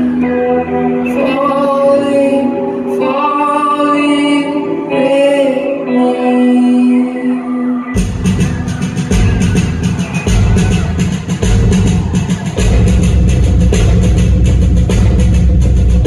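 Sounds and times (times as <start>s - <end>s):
woman singing: 0.0s - 7.9s.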